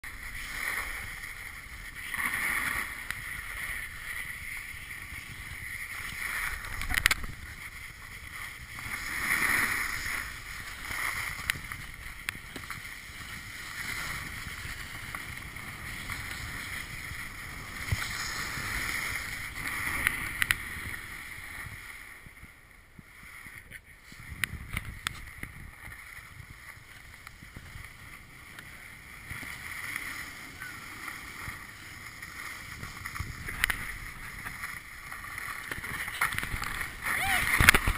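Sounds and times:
snowboards scraping over snow: 0.0s - 37.9s.

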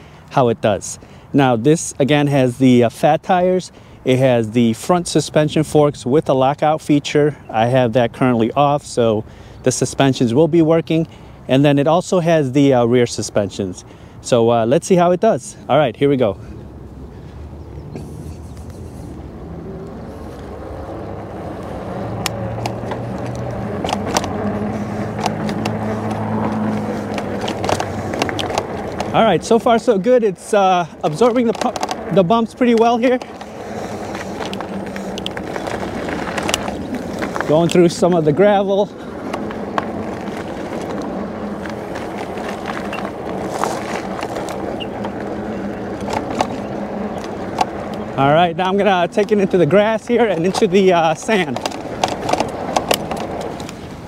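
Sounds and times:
bike clicking and rattling over bumps: 0.0s - 54.0s
electric bike motor humming: 16.6s - 54.0s
stones clicking and rattling: 22.2s - 29.2s, 31.1s - 37.7s, 39.2s - 48.1s, 50.2s - 53.8s.

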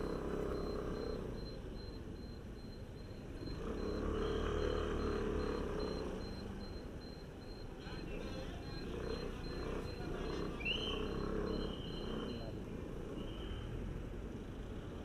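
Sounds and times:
road noise: 0.0s - 15.0s
vehicle engine running: 0.0s - 15.0s.

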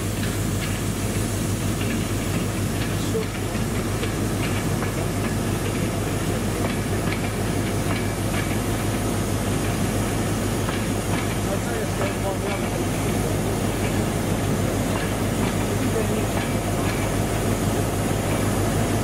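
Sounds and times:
train rolling past: 0.0s - 19.0s.

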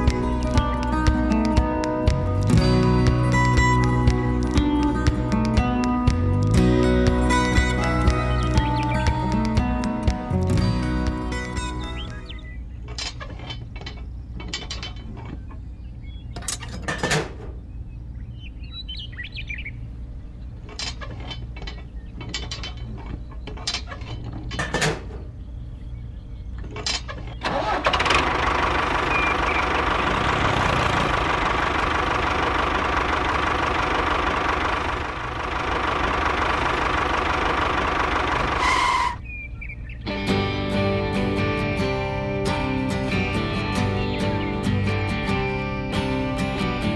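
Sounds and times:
low steady hum: 8.9s - 43.5s
toy tractor motor running: 27.5s - 39.2s.

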